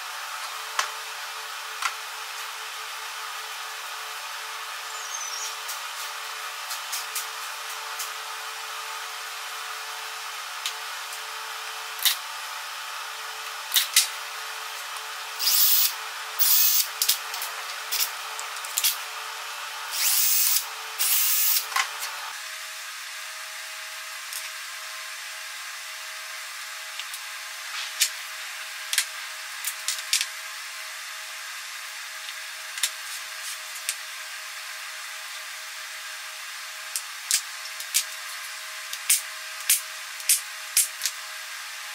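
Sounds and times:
steady workshop hum: 0.0s - 41.9s
power tool bursts: 15.4s - 17.2s, 19.9s - 21.7s.

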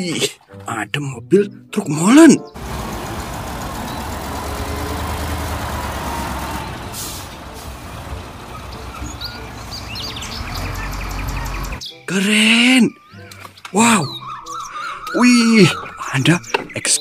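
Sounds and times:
diesel truck engines: 2.6s - 11.8s
air brake hiss: 6.8s - 7.6s.

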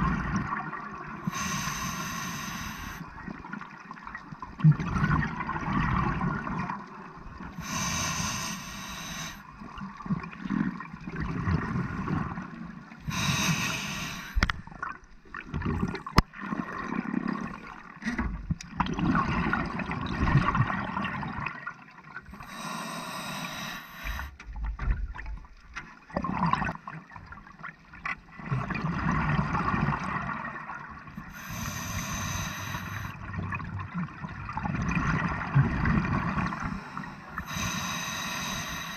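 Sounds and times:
hissing regulator inhale: 1.2s - 3.1s, 7.6s - 9.4s, 13.1s - 14.5s, 22.4s - 24.4s, 31.3s - 33.2s, 36.5s - 38.9s.

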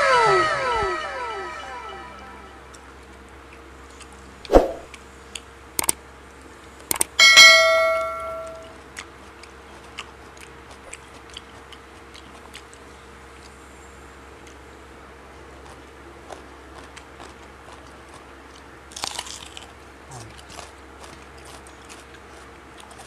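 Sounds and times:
chewing raw vegetables: 3.1s - 7.1s, 8.6s - 23.0s
sharp thump: 4.5s - 4.9s
mouse clicks: 6.9s - 7.1s
notification bell ding: 7.2s - 8.7s.

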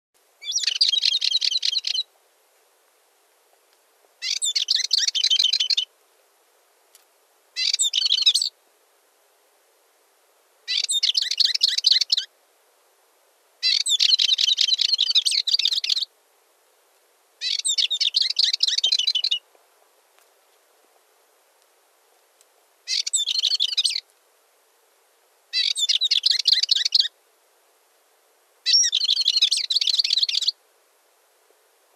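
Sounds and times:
bird twittering song: 0.4s - 2.1s, 4.2s - 5.9s, 7.6s - 8.5s, 10.7s - 12.3s, 13.6s - 16.1s, 17.4s - 19.4s, 22.9s - 24.0s, 25.5s - 27.1s, 28.7s - 30.6s.

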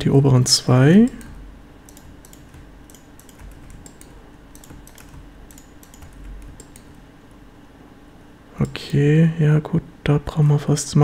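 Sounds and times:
faint steady hum: 0.0s - 11.0s
keyboard and mouse clicks: 1.0s - 7.1s.

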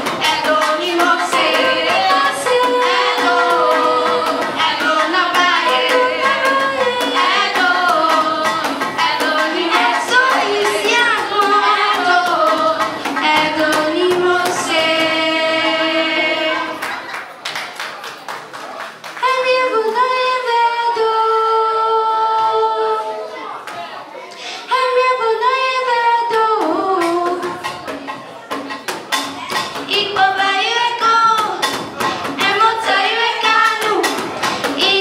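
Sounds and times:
girls singing into microphones: 0.0s - 17.1s, 19.2s - 23.4s, 24.3s - 27.9s, 29.1s - 35.0s
sharp percussive beats: 0.0s - 17.4s, 26.3s - 35.0s.

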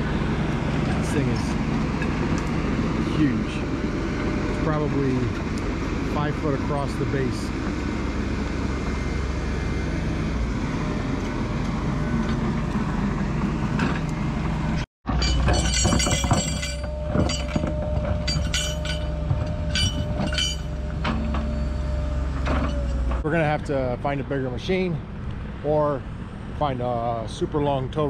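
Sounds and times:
high hydraulic whine: 0.0s - 23.6s
excavator diesel engine: 0.0s - 28.0s
bucket clanking and scraping soil: 15.1s - 21.6s.

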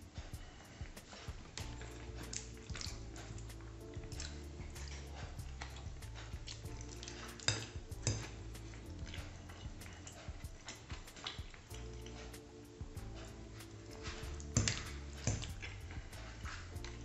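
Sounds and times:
soft background music: 0.0s - 17.0s
fork scraping on ceramic plate: 1.7s - 11.4s.

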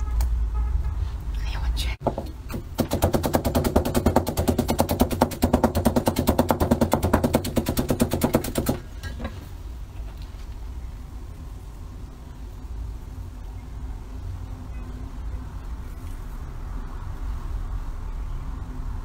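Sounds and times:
knife chopping on plastic board: 2.0s - 8.8s.

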